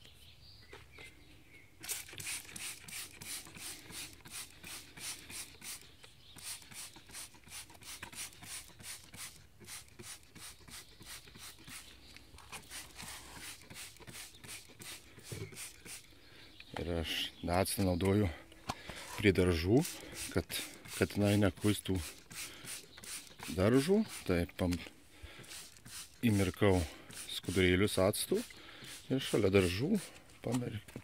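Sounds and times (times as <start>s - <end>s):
spray bottle hissing: 1.8s - 16.1s, 19.8s - 24.5s, 25.3s - 30.2s.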